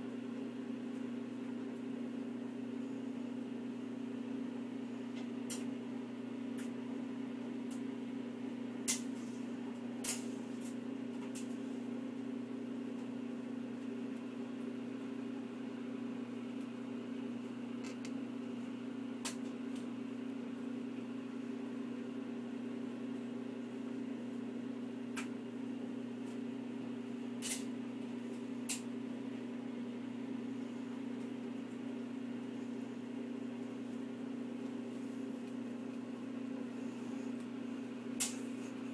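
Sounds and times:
low machine hum: 0.0 - 38.9.

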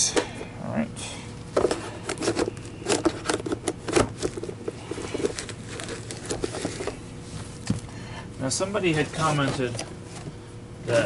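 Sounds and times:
paper bag rustling and crinkling: 1.7 - 7.6, 8.7 - 10.2.

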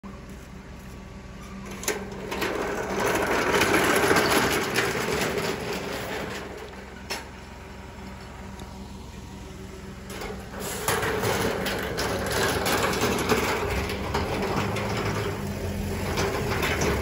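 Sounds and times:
sliding gate rattling rumble: 1.6 - 7.6, 9.9 - 17.0.

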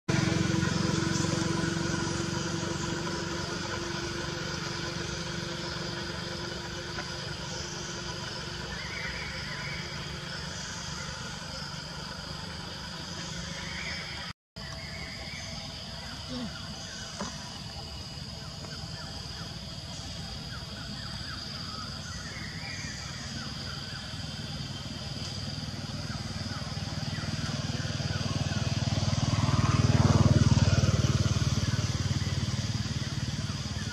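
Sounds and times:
high insect drone: 0.1 - 33.9
motor engine running: 0.1 - 33.9.

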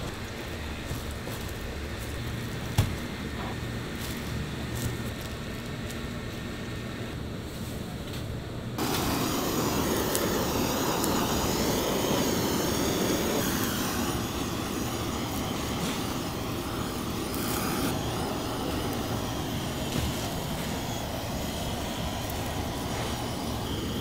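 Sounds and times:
gas torch hissing: 8.8 - 24.0.

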